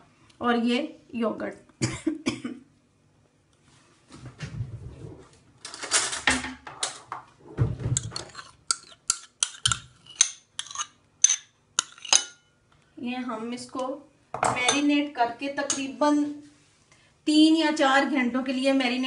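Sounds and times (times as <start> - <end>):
metal spoon clinking on bowl: 8.0 - 12.4.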